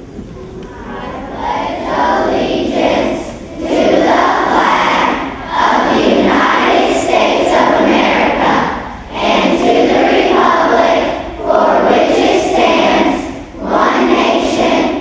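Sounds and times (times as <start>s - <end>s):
children singing together: 0.4s - 15.0s.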